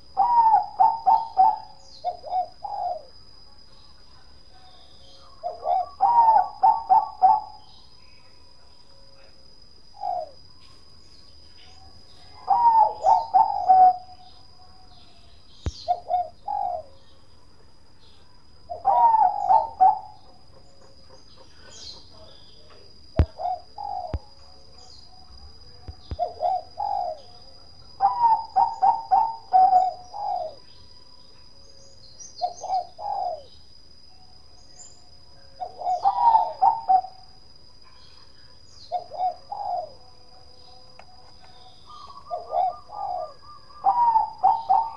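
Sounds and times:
dove rolling coos: 0.0s - 3.1s, 5.4s - 7.6s, 12.4s - 14.2s, 15.9s - 16.9s, 18.7s - 20.3s, 23.2s - 24.2s, 26.2s - 27.2s, 28.0s - 30.6s, 32.4s - 33.5s, 35.6s - 37.2s, 38.9s - 40.0s, 41.9s - 44.9s.

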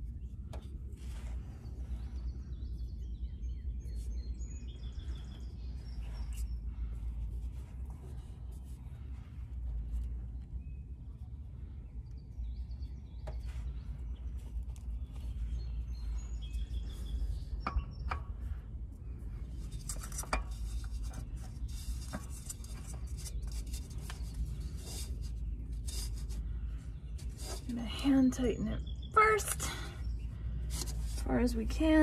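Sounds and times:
metal clicks and scrapes: 19.6s - 26.4s.

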